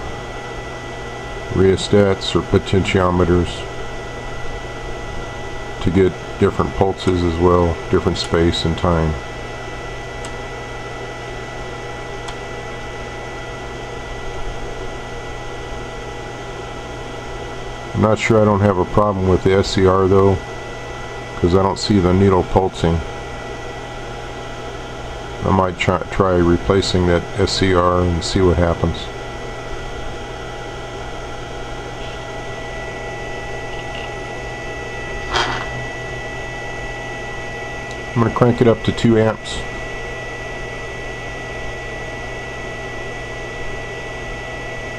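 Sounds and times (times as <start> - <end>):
circuit low hum: 0.0 - 44.9
cooling fan whir: 0.0 - 44.9
equipment clattering on bench: 35.3 - 35.7.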